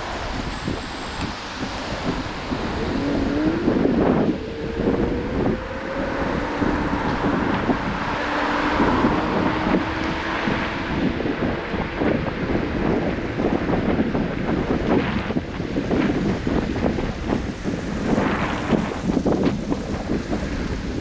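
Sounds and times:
rumbling road noise: 0:00.0 - 0:21.0
wind buffeting microphone: 0:00.0 - 0:21.0
electric motor whine: 0:00.7 - 0:11.3.

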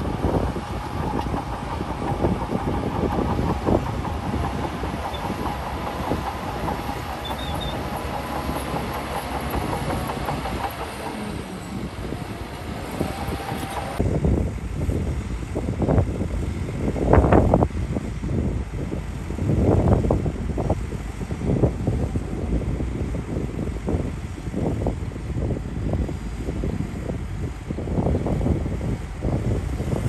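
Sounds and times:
steel tracks clanking: 0:00.0 - 0:14.0
thin steady squeal: 0:00.0 - 0:14.0
diesel engine running under load: 0:00.0 - 0:30.0.

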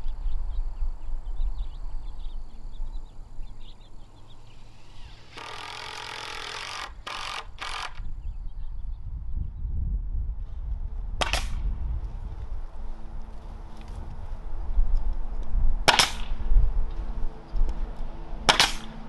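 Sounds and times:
birds chirping: 0:00.0 - 0:09.7
cordless drill driving into wood: 0:05.0 - 0:08.1.

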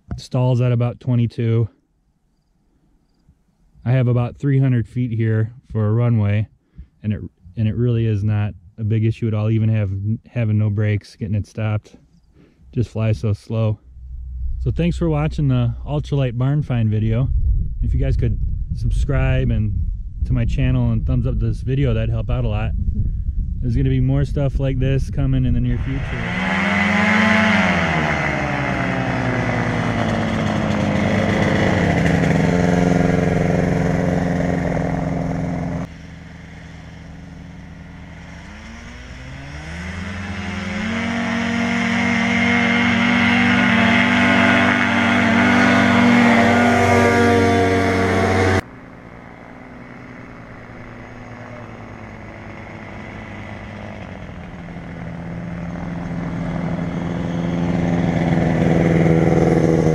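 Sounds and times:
ultralight airplane engine and propeller: 0:13.8 - 0:59.9.

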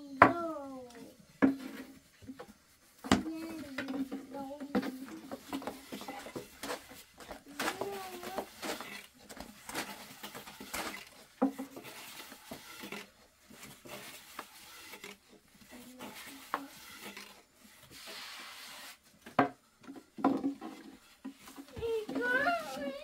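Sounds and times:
rolling pin rubbing on dough: 0:04.8 - 0:19.1.

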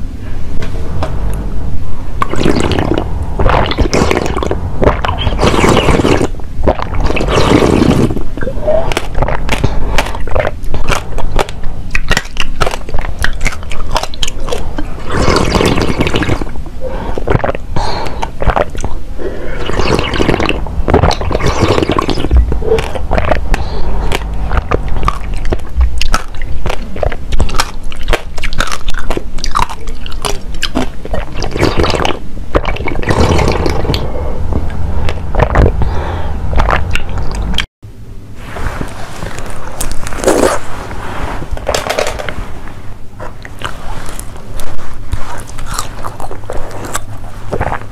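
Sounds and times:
chewing crunchy seeds: 0:02.2 - 0:16.5, 0:17.1 - 0:35.8, 0:43.2 - 0:47.9
wet mouth clicks: 0:02.2 - 0:19.0, 0:19.6 - 0:35.9, 0:36.6 - 0:37.7.

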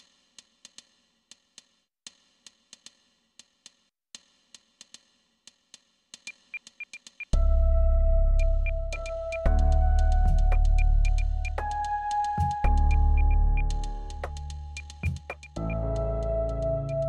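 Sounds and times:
sharp ringing ticks: 0:12.7 - 0:15.6.

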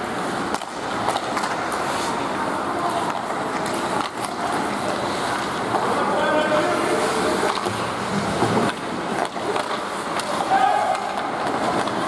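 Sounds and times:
arena noise: 0:00.0 - 0:12.0
skates scraping on ice: 0:00.0 - 0:12.0
sticks clacking on puck: 0:00.3 - 0:02.1, 0:03.0 - 0:06.0, 0:07.4 - 0:12.0.

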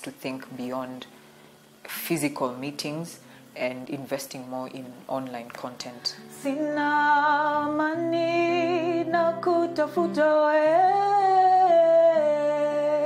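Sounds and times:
strummed acoustic guitar: 0:00.4 - 0:13.0
woman singing: 0:06.0 - 0:13.0.

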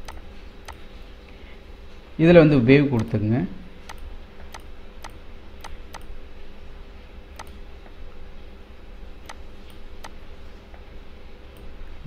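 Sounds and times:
computer mouse clicking: 0:00.0 - 0:00.8, 0:03.0 - 0:03.2, 0:03.9 - 0:06.1, 0:07.4 - 0:07.6, 0:09.2 - 0:10.2
faint steady hum: 0:00.0 - 0:12.0.

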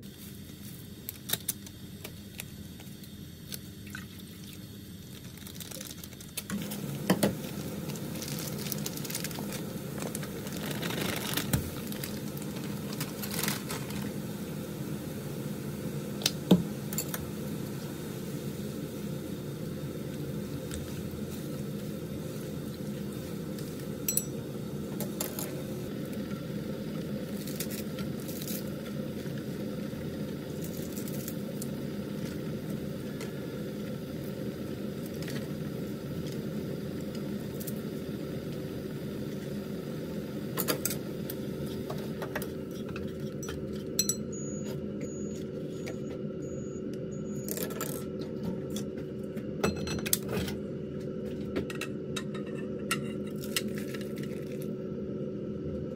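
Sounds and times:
broth bubbling in a pan: 0:00.0 - 0:43.5.

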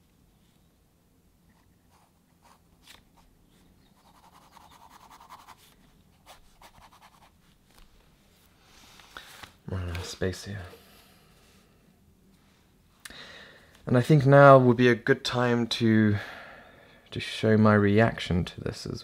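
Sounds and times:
pen scratching on paper: 0:04.0 - 0:05.6.

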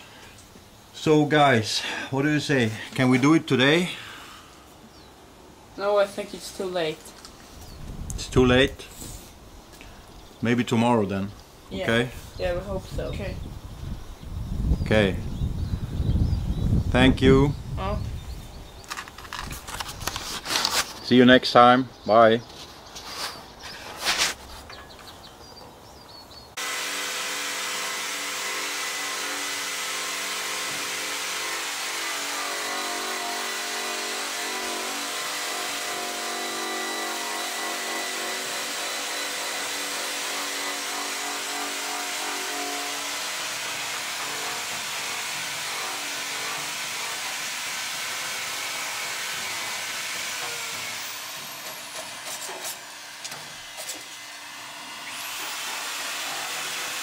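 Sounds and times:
electric grinder grinding metal: 0:26.6 - 0:57.0.

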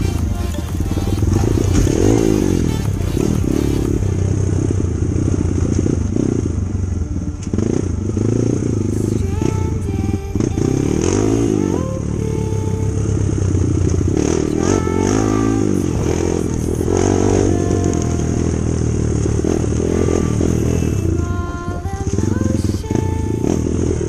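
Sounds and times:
motorcycle engine revving: 0:00.0 - 0:24.0.

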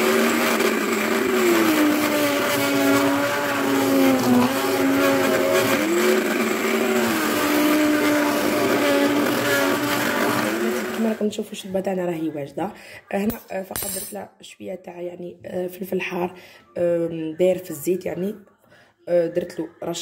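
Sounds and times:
immersion blender motor hum: 0:00.0 - 0:11.2.

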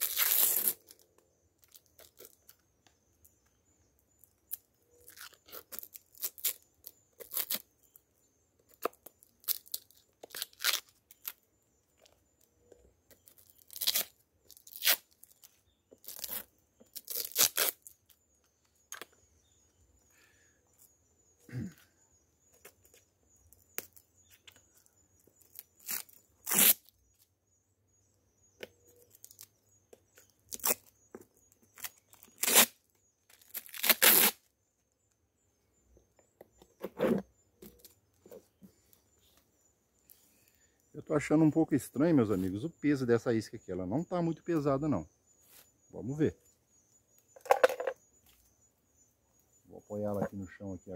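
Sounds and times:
covering being torn: 0:00.0 - 0:00.9, 0:05.1 - 0:06.6, 0:09.4 - 0:11.2, 0:13.6 - 0:15.1, 0:17.0 - 0:17.9, 0:25.8 - 0:26.8, 0:30.5 - 0:30.8, 0:32.3 - 0:32.8, 0:33.4 - 0:34.4.

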